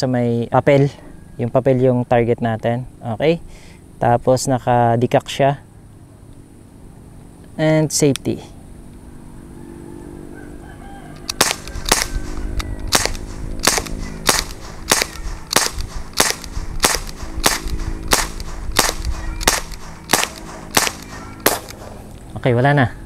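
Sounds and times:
bb pistol shots: 11.3 - 22.1.

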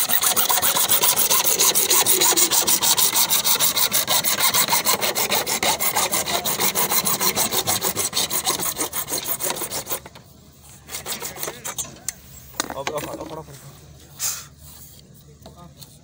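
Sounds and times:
hacksaw cutting plastic pipe: 0.0 - 10.2, 10.9 - 11.9.

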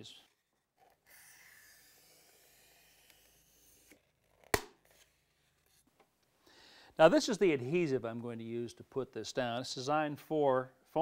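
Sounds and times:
foam board snapping: 4.4 - 4.8.

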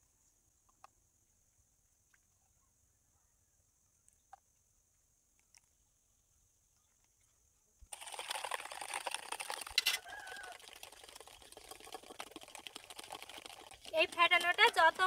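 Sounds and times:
utensil beating eggs in steel bowl: 7.9 - 15.0.

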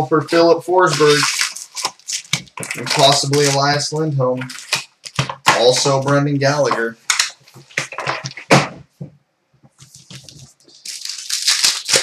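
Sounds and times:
wrapper crinkling and tearing: 0.8 - 6.0, 9.9 - 12.0
cards and packaging clicking: 0.9 - 8.5, 9.8 - 12.0.

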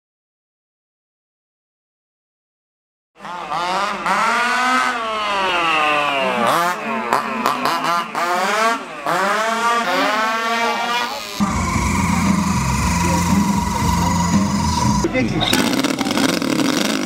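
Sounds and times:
model car engine revving: 3.2 - 17.0.

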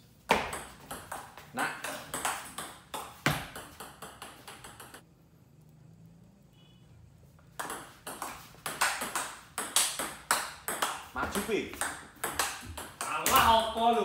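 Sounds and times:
ping pong ball clicking: 1.9 - 5.0, 7.6 - 11.1, 11.8 - 13.3.

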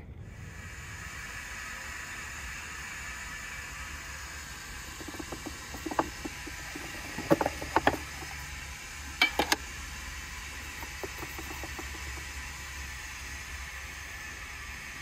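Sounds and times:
stove burner hissing: 0.0 - 15.0
metal tin clicking and clinking: 9.1 - 9.6.

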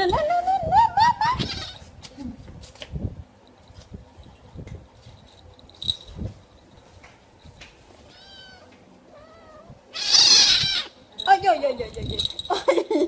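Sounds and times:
cat meowing: 8.1 - 10.9.

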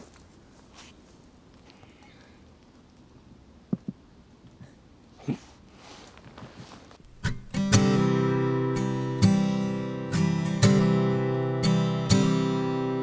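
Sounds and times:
strummed acoustic guitar chords: 7.0 - 13.0.

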